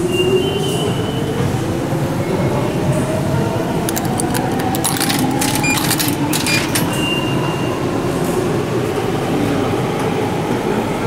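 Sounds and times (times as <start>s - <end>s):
coins clinking into slot: 3.9s - 7.0s.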